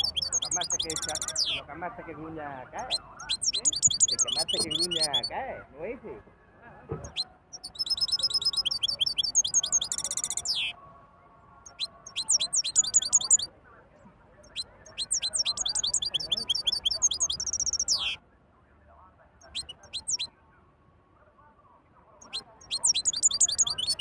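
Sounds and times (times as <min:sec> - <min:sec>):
goldfinch singing: 0:00.0 - 0:05.4, 0:07.0 - 0:10.8, 0:11.7 - 0:13.5, 0:14.4 - 0:18.2, 0:19.4 - 0:20.3, 0:22.2 - 0:24.0.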